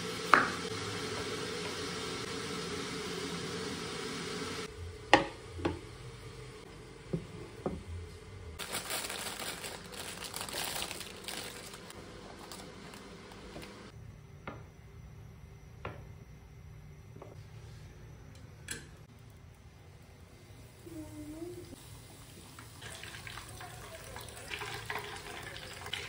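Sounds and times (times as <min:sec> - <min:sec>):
plastic wrap crinkling: 0:08.6 - 0:13.9.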